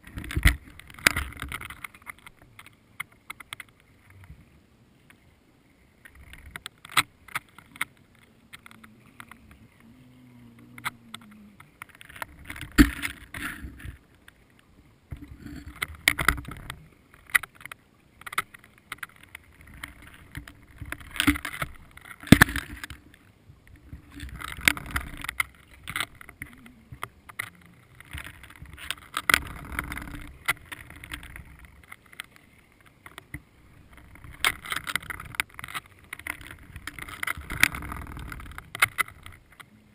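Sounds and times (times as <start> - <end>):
clicks and knocks on camera housing: 10.8 - 14.0, 15.1 - 23.1.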